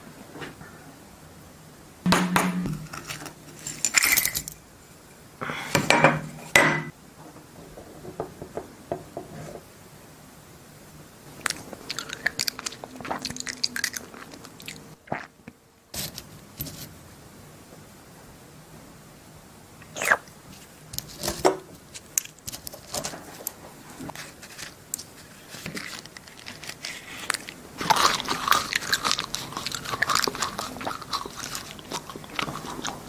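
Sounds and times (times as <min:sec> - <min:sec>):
coins clinking: 0:03.6 - 0:04.6.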